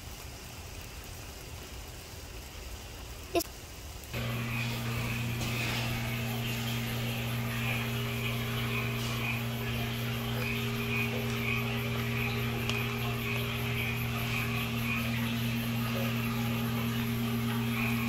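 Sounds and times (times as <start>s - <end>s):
low machine hum: 4.2s - 18.0s.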